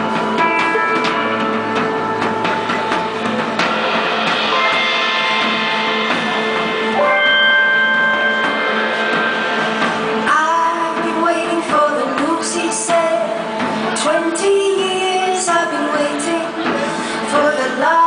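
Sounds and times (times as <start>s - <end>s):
sustained guitar notes: 0.0s - 12.3s
drum kit: 0.0s - 18.0s
woman singing: 10.2s - 18.0s.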